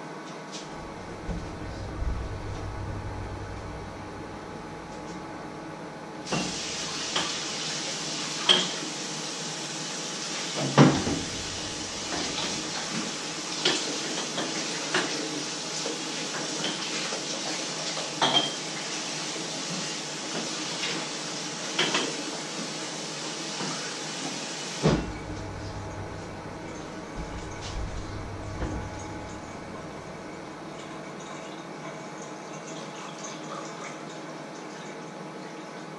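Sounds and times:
dishes and pans clinking: 8.4s - 8.8s, 18.2s - 18.6s, 21.8s - 22.2s.

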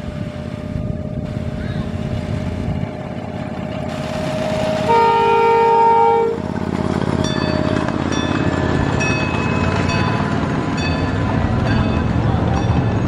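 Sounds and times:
rail vehicle rumbling: 0.0s - 13.0s
train horn blast: 4.5s - 6.6s.

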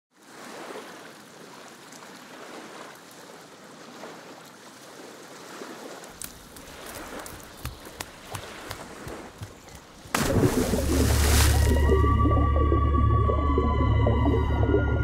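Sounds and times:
rushing water: 0.1s - 15.0s.

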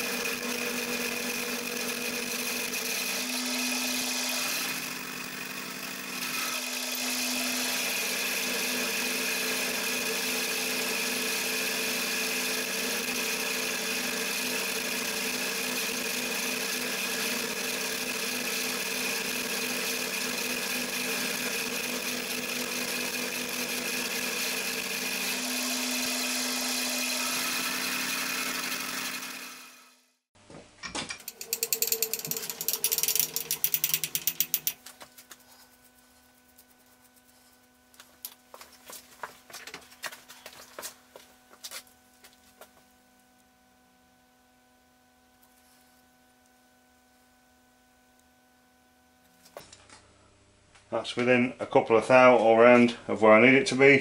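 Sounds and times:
milling machine cutting metal: 0.0s - 30.0s, 31.2s - 34.8s
rapid rattling clicks: 31.2s - 34.8s.

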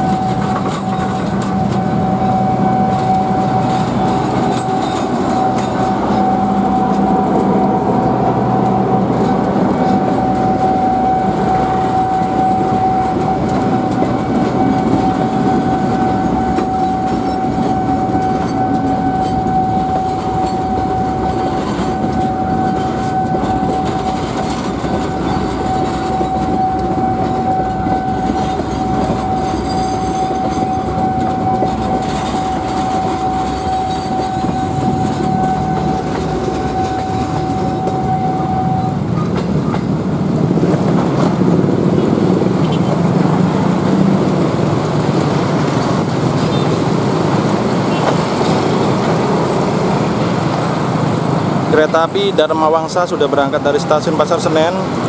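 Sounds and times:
steady high-pitched tone: 0.0s - 39.4s
train coaches rumbling past: 0.0s - 55.0s
train wheel clatter: 0.0s - 55.0s.

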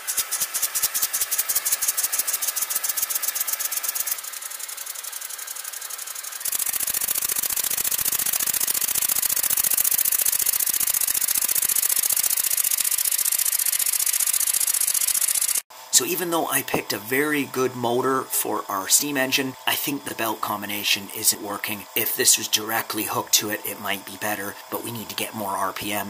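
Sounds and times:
model steam engine rattling: 0.0s - 15.6s.

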